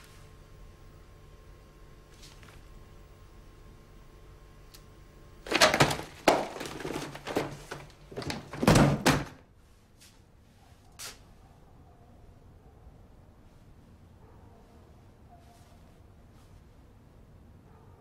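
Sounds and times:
loud knocks and thuds: 0:05.5 - 0:09.4.

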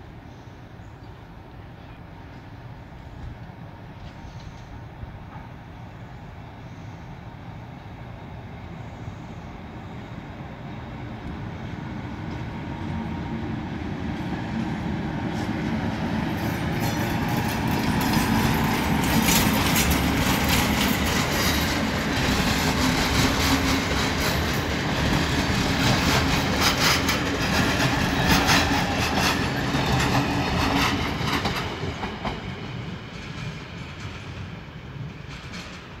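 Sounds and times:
train rumble: 0:00.0 - 0:36.0
wheels clattering over rail joints: 0:16.4 - 0:32.6.

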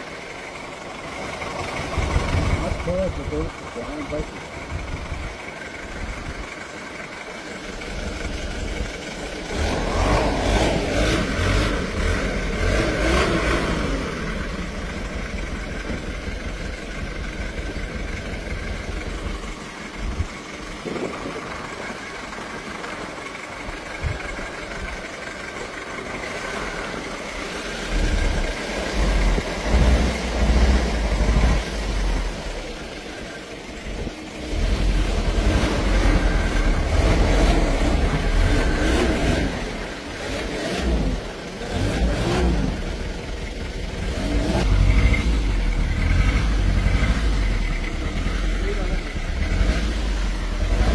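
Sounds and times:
jeep engines running: 0:00.0 - 0:50.9
engine revving: 0:01.0 - 0:06.6, 0:07.6 - 0:50.9
deep low rumbling: 0:07.8 - 0:23.0.

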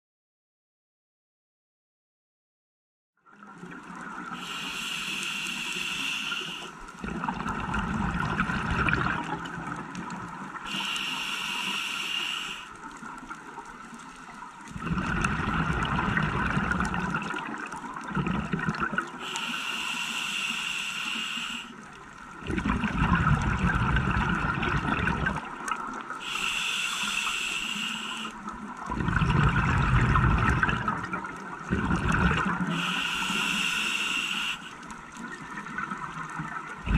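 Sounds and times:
regulator inhalation hiss: 0:04.3 - 0:06.9, 0:10.6 - 0:12.9, 0:19.2 - 0:21.8, 0:26.2 - 0:28.5, 0:32.6 - 0:34.9
exhaled bubbles rushing: 0:07.0 - 0:10.6, 0:14.6 - 0:19.2, 0:22.3 - 0:26.1, 0:28.6 - 0:32.9, 0:35.1 - 0:36.9.

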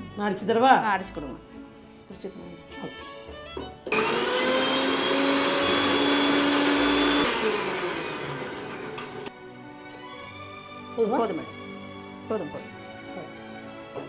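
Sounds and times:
mixer grinder motor whining: 0:03.9 - 0:09.3.

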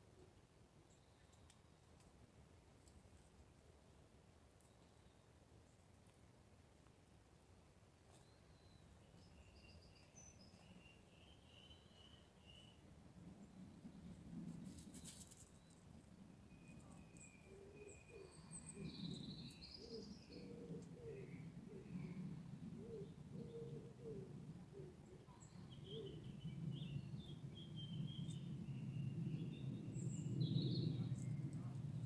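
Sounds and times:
repeated low bird notes: 0:16.3 - 0:32.0
steady low rumble: 0:25.8 - 0:32.0.

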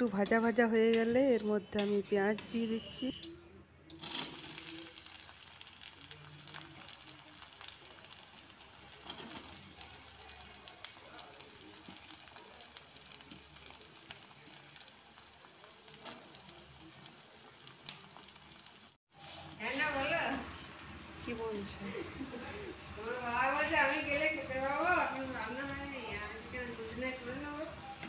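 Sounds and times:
onions sizzling in hot oil: 0:00.0 - 0:03.3, 0:03.9 - 0:28.0
oil crackles and pops: 0:03.1 - 0:19.6.

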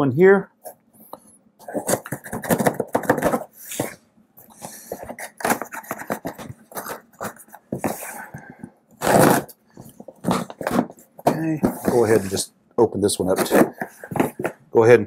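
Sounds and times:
knife slicing packing tape: 0:09.0 - 0:09.6.

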